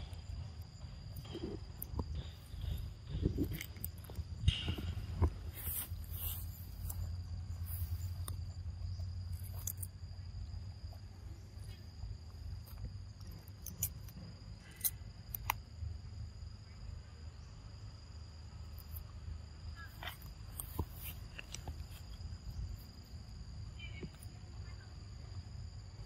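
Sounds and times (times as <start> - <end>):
monkeys chewing cucumber crunches: 0.0 - 9.9
high insect drone: 0.0 - 26.0.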